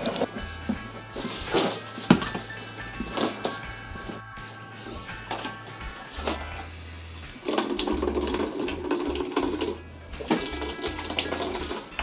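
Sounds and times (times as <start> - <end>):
liquid pouring into plastic bucket: 7.4 - 11.9.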